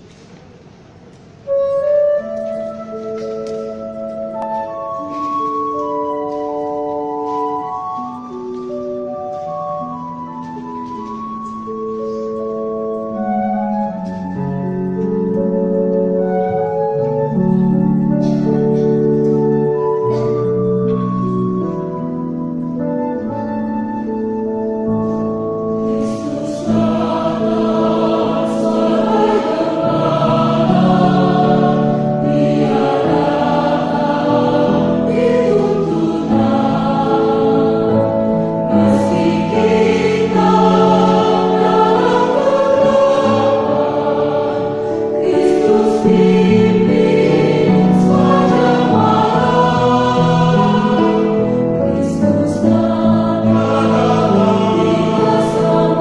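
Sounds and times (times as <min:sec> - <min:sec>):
choir singing in harmony: 0:12.9 - 0:56.0.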